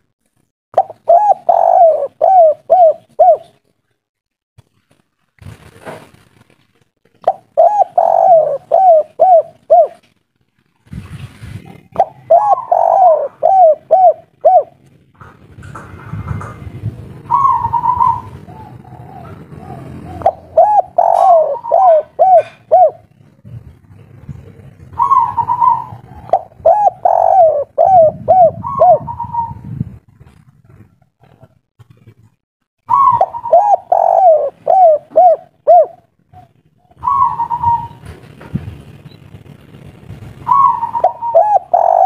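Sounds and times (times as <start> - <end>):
dove cooing: 0.8 - 3.6, 7.2 - 10.1, 11.7 - 14.8, 17.2 - 29.8, 32.9 - 38.2, 40.4 - 42.0.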